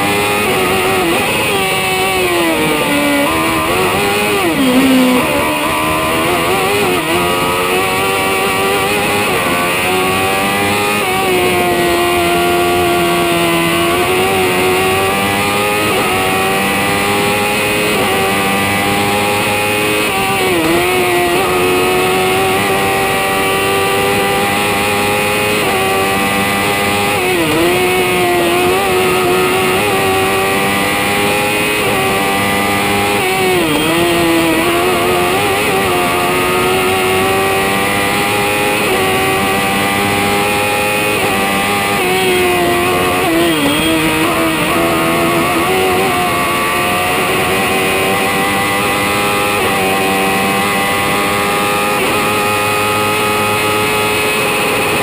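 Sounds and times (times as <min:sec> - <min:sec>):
racing car engine at high revs: 0:00.0 - 0:55.0.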